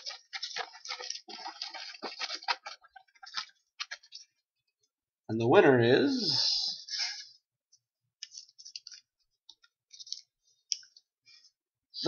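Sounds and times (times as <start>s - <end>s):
paper slips crinkling: 0.0s - 4.4s.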